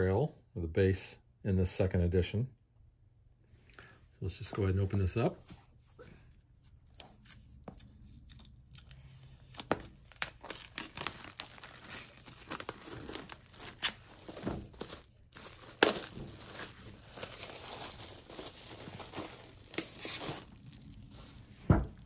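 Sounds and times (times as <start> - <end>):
plastic shrink wrap tearing: 8.1 - 22.0.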